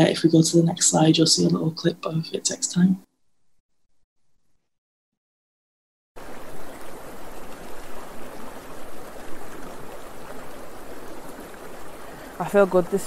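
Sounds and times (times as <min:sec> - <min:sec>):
shallow stream running: 0:06.2 - 0:13.0.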